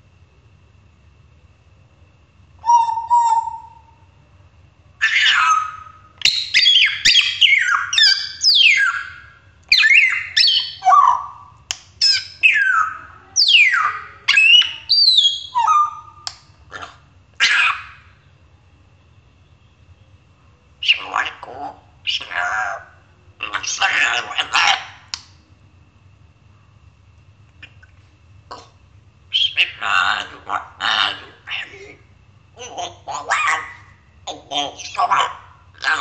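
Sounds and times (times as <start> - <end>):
parrot whistling and squawking: 2.6 - 3.9, 5.0 - 18.2, 20.8 - 25.1, 29.3 - 36.0.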